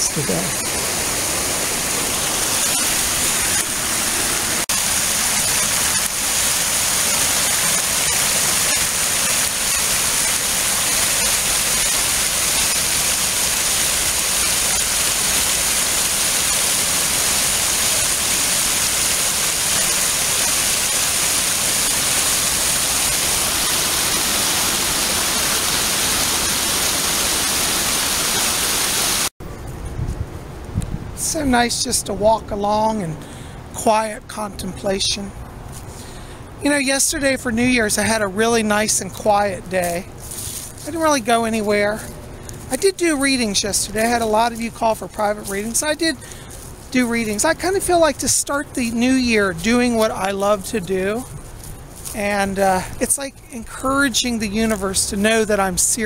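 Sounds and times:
water rushing over rocks: 0:00.0 - 0:29.3.

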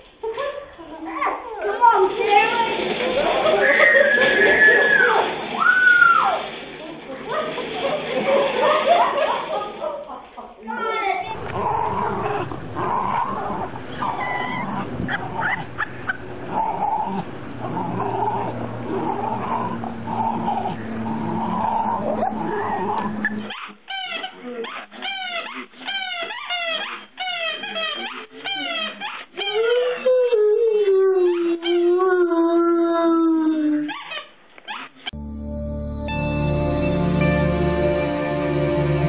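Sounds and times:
dogs playing: 0:11.3 - 0:30.3
dog howling: 0:11.3 - 0:33.9
squeaky toy squeaking: 0:23.2 - 0:30.0.

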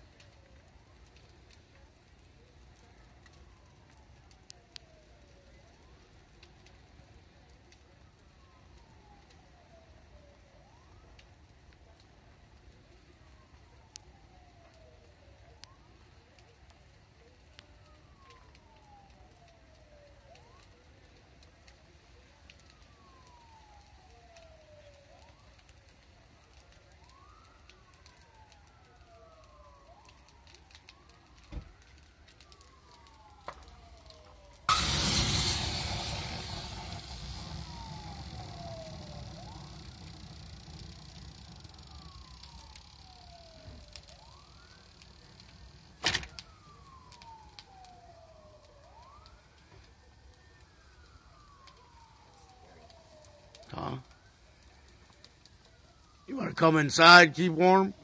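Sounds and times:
distant siren wailing: 0:00.0 - 0:58.0
fire crackling: 0:00.0 - 0:58.0
sharp pops: 0:34.7 - 0:41.2.

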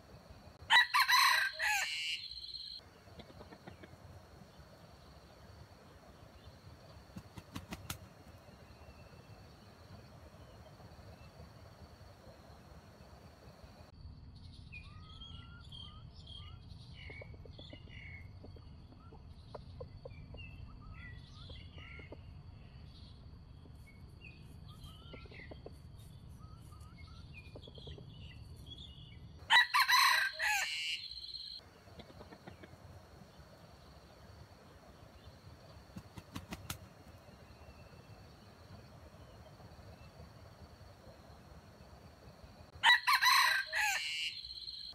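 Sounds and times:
small birds chirping faintly: 0:00.0 - 0:44.9
rooster crowing: 0:00.6 - 0:02.7, 0:29.5 - 0:31.6, 0:42.8 - 0:44.8.

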